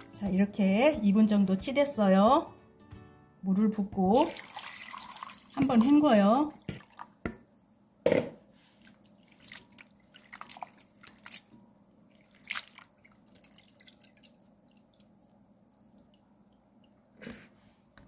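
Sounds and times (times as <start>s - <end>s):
water drips and splashes: 4.2s - 7.2s, 8.8s - 17.0s.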